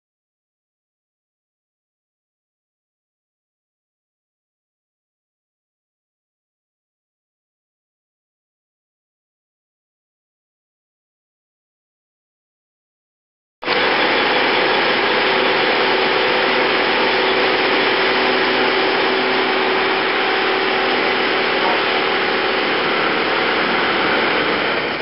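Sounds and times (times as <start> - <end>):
crane mechanical noise with whine: 13.7 - 25.0.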